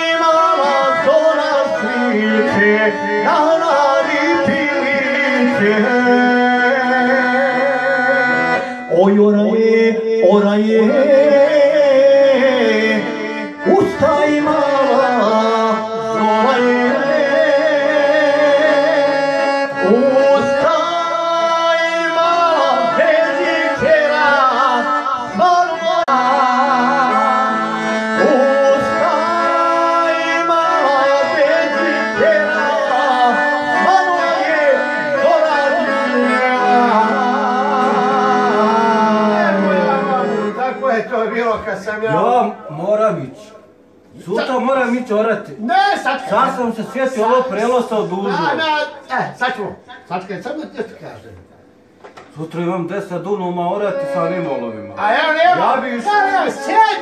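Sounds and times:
man singing into microphone: 0.0 - 41.4
accordion chords: 0.0 - 57.0.

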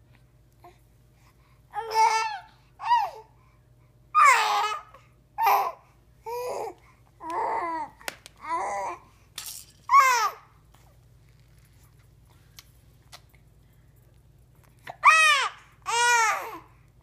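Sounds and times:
baby babbling and cooing: 1.7 - 3.3, 4.2 - 9.1, 9.9 - 10.5, 14.8 - 16.7.

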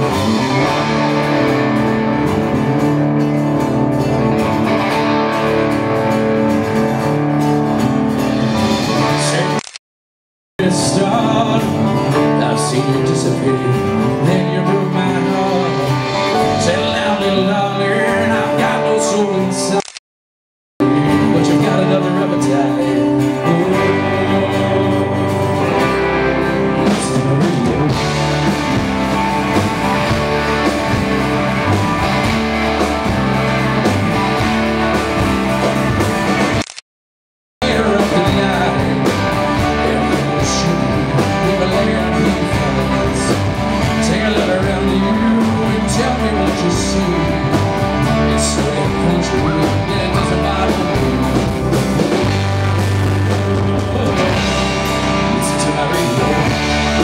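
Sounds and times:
live rock band playing: 0.0 - 9.8, 10.6 - 19.9, 20.8 - 36.8, 37.6 - 57.0
person singing: 8.8 - 9.6, 10.6 - 19.9, 20.8 - 28.6, 37.6 - 57.0.

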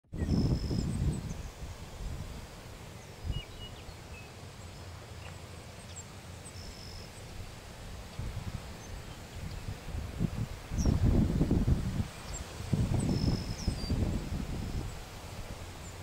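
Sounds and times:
wind rumble on microphone: 0.1 - 4.2, 7.4 - 16.0
whistled bird note: 0.2 - 1.4
bird chirps: 3.0 - 7.2, 13.0 - 14.0.

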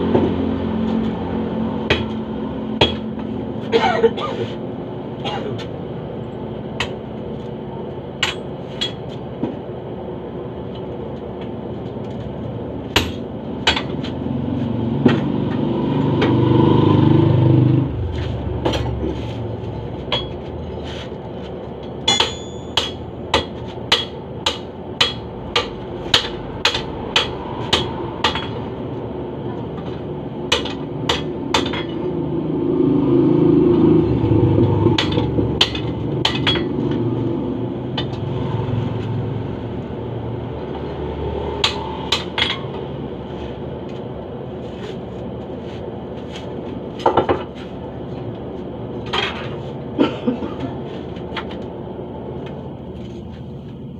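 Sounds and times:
hammer striking steel on anvil: 1.8 - 2.2, 2.8 - 3.3, 8.2 - 9.2, 12.9 - 14.1, 20.1 - 20.5, 22.0 - 28.6, 30.5 - 32.1, 34.8 - 37.0, 41.6 - 42.8.

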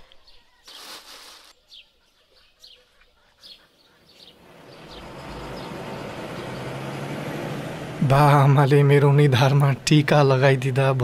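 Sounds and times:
birds chirping: 0.0 - 11.0
bus engine and road noise: 3.8 - 11.0.

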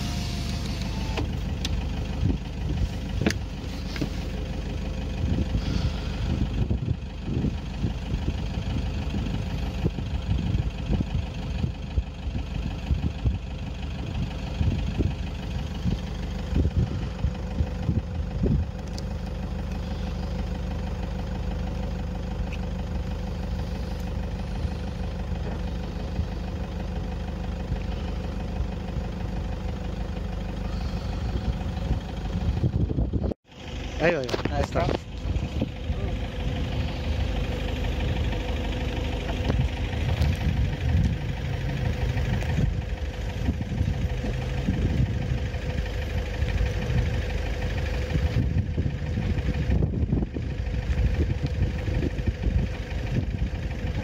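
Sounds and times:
vehicle engine idling: 0.0 - 54.0.

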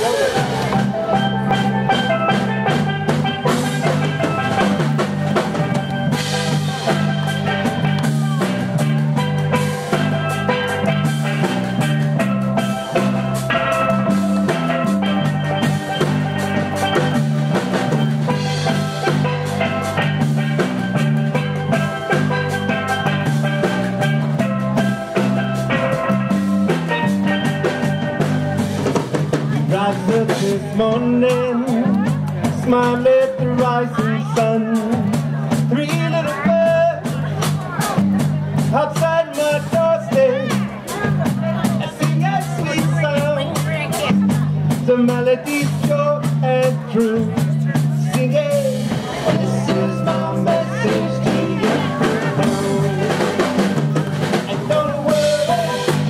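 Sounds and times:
steel pan melody: 0.0 - 28.9
bass line: 0.0 - 56.0
drum kit: 0.0 - 56.0.

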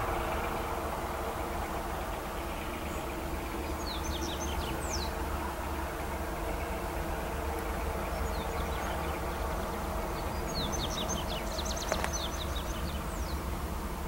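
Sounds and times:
freight train rumble: 0.0 - 14.0
bird chirping: 10.2 - 13.4.

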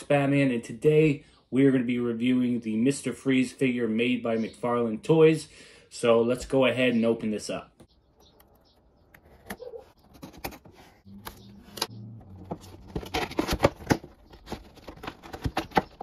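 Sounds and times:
cardboard and plastic packaging crinkling: 12.4 - 16.0.

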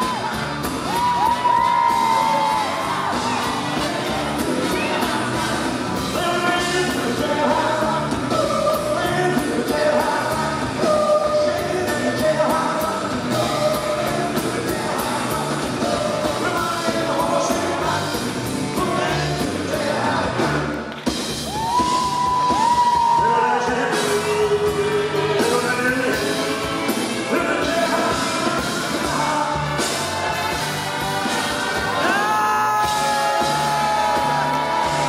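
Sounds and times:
rock and roll band: 0.0 - 35.0
voices singing in harmony: 1.8 - 20.6.

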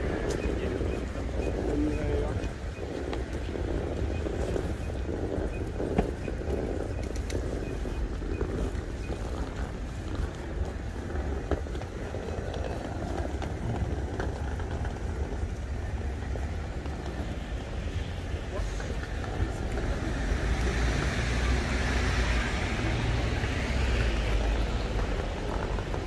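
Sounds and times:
people talking: 0.0 - 7.3, 18.4 - 23.2
traffic passing: 0.0 - 26.0.

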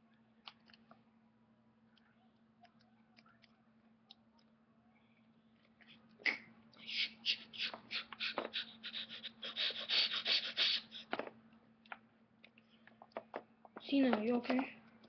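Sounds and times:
child making hissing mouth sounds: 6.2 - 11.2.

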